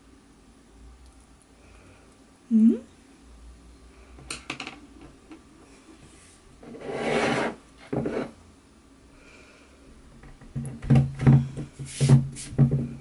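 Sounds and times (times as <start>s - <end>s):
plaster scraping on wood: 6.6s - 8.4s
knocks and bumps on table: 10.3s - 13.0s.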